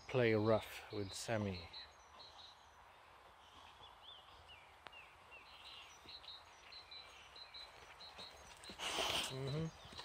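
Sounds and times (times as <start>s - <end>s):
faint bird chirps: 0.0s - 10.0s.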